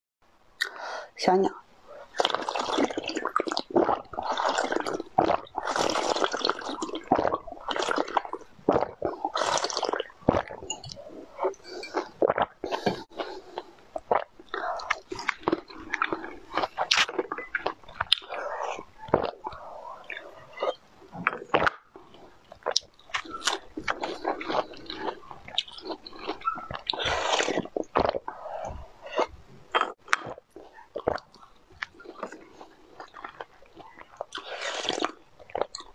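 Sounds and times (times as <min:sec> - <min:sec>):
wet chewing and squishing: 0:01.9 - 0:35.9
crunching hard candy: 0:02.1 - 0:10.6.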